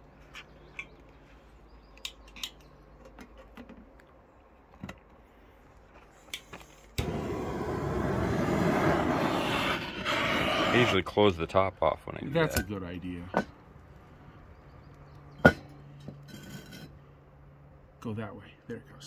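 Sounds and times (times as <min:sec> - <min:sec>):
torch flame hissing: 0:07.0 - 0:11.0.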